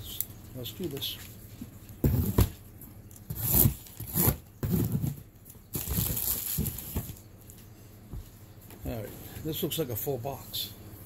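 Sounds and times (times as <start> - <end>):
cardboard box tearing: 3.3 - 5.2.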